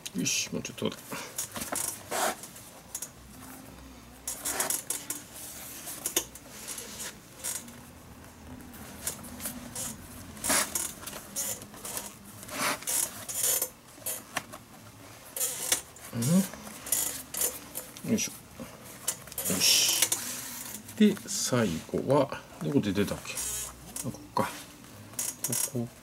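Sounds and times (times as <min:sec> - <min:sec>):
leather lace scraping: 0:01.4 - 0:03.1, 0:04.2 - 0:21.9.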